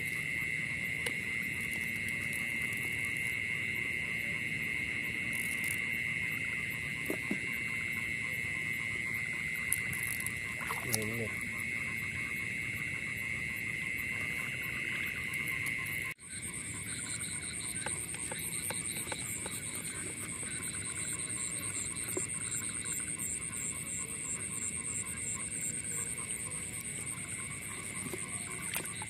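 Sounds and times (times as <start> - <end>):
high pulsing frog trill: 0.0 - 29.0
frogs calling in chorus: 0.1 - 29.0
small water splashes: 10.0 - 11.4, 27.9 - 29.0.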